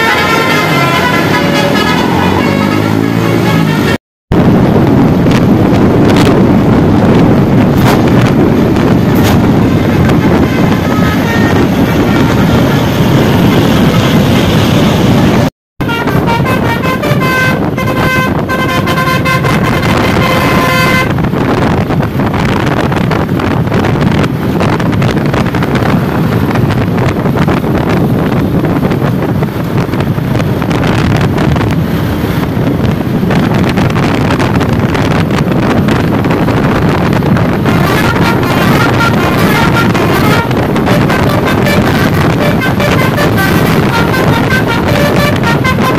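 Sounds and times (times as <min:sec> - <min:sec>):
bus air horn playing a tune: 0:00.0 - 0:04.0, 0:08.9 - 0:21.3, 0:37.5 - 0:45.9
road noise of passing vehicles: 0:00.0 - 0:45.9
wind noise: 0:00.0 - 0:45.9.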